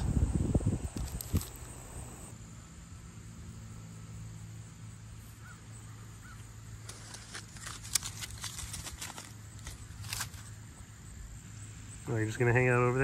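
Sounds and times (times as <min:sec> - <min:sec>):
steady low hum: 0:00.0 - 0:07.0
faint bird calls: 0:05.3 - 0:06.5
light rustling and clicks: 0:06.8 - 0:10.5.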